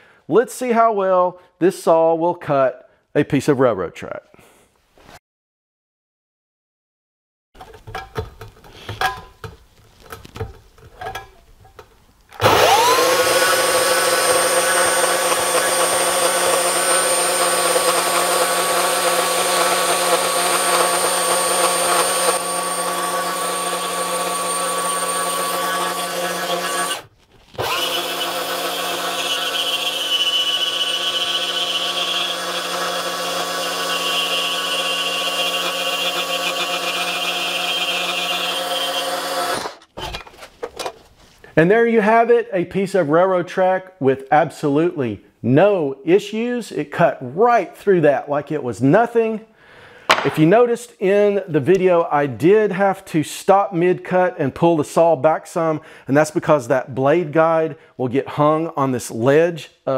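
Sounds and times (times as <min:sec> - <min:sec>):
band saw cutting steel: 0:12.4 - 0:40.1.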